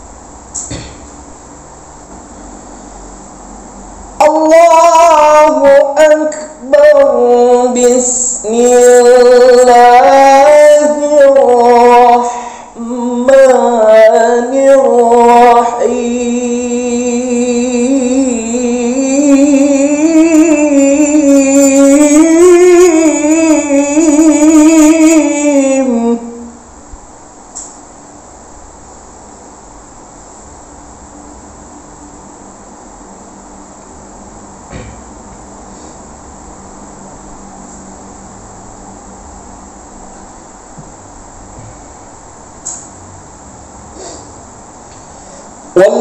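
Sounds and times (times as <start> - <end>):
man reciting melodically: 4.2 - 26.5, 45.7 - 46.0.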